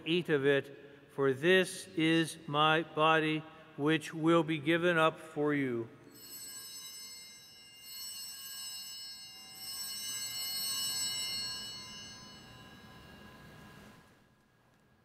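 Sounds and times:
small bells ringing: 0:06.1 - 0:14.0.

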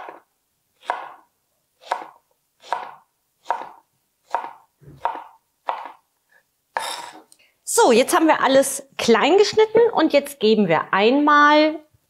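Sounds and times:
knife chopping on cutting board: 0:00.8 - 0:01.2, 0:01.8 - 0:06.0.

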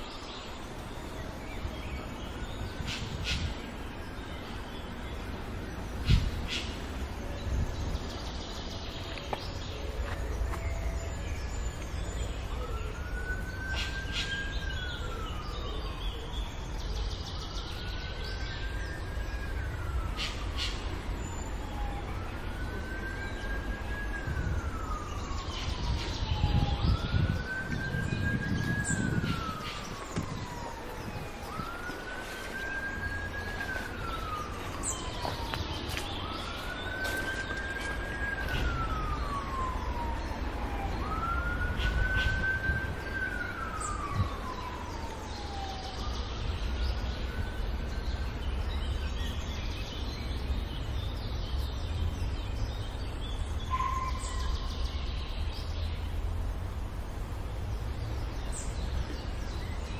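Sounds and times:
bird chirps: 0:00.0 - 0:56.2
siren wailing: 0:09.8 - 0:16.7, 0:17.4 - 0:46.6.

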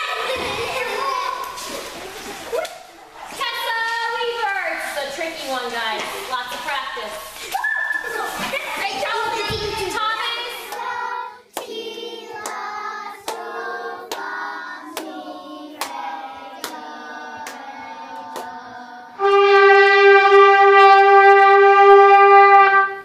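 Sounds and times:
wind instrument held note: 0:19.2 - 0:23.0.

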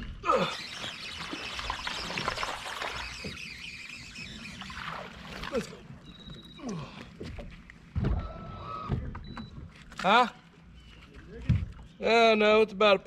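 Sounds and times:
fishing reel whirring: 0:00.2 - 0:06.6
short downward squeaks: 0:00.3 - 0:06.9.

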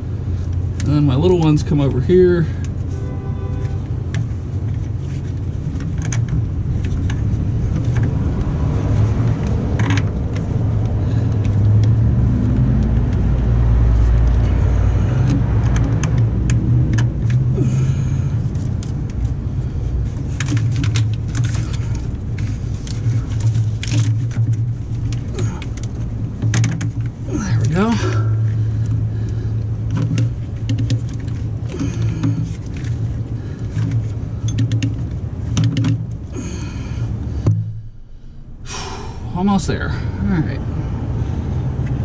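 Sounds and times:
low rumble: 0:00.0 - 0:42.0
cables clicking and clinking: 0:03.6 - 0:19.4, 0:20.0 - 0:36.6.

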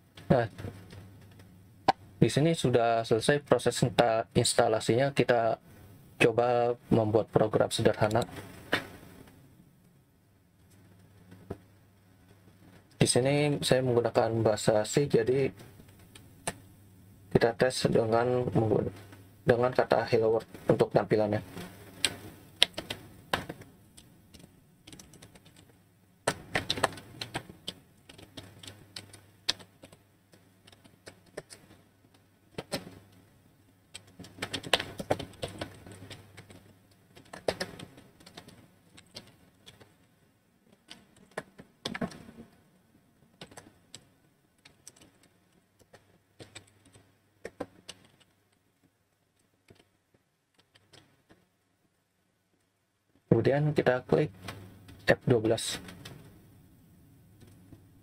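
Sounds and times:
computer keyboard typing: 0:22.0 - 0:33.1, 0:33.9 - 0:40.0, 0:40.7 - 0:42.6, 0:43.3 - 0:48.6, 0:49.4 - 0:51.4.

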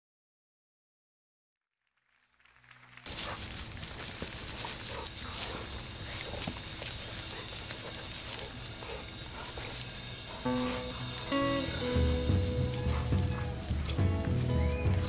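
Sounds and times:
music: 0:02.6 - 0:15.0
dog vocal sounds: 0:03.1 - 0:15.0
dogs scuffling: 0:03.1 - 0:15.0.

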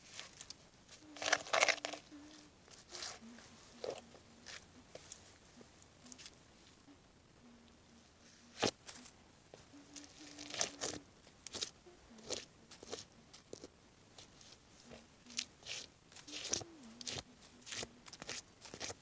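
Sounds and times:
boots crushing apple pieces: 0:01.2 - 0:02.1, 0:15.6 - 0:19.0.

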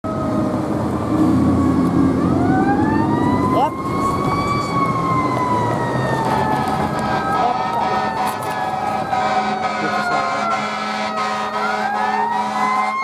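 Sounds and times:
fire engine siren wailing: 0:00.0 - 0:13.0.

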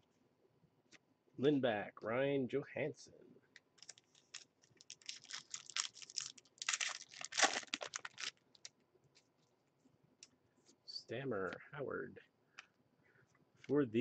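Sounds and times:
wrapper crinkling and tearing: 0:03.8 - 0:08.7.

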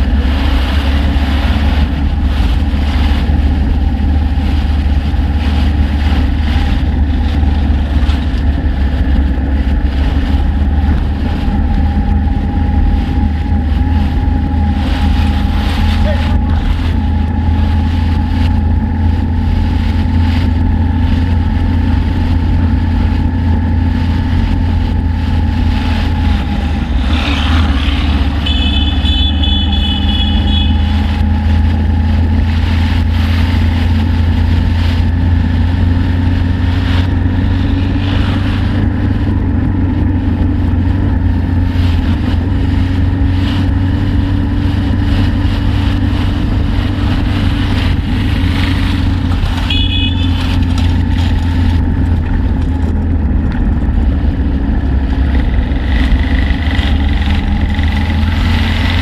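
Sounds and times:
motorcycle engine running: 0:00.0 - 0:59.0
road and wind noise: 0:00.0 - 0:59.0.

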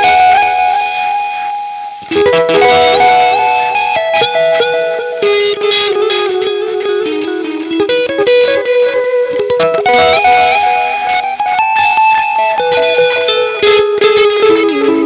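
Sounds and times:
electric guitar with echo: 0:00.0 - 0:15.0.

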